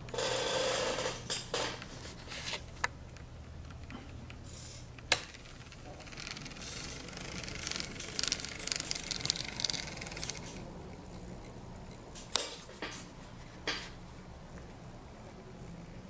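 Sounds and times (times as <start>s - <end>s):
gears and wheels rattling: 5.3s - 12.4s
model train motor hum: 5.5s - 12.0s.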